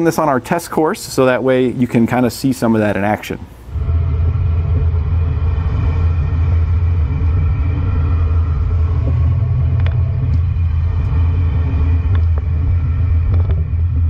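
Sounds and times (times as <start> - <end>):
drivetrain hum: 2.9 - 14.0
vehicle driving rumble: 3.6 - 14.0.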